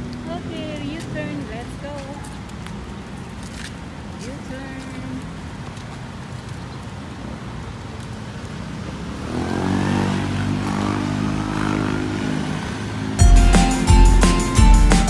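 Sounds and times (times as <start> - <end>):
street traffic: 0.0 - 15.0
vehicle engine passing close: 9.2 - 13.2.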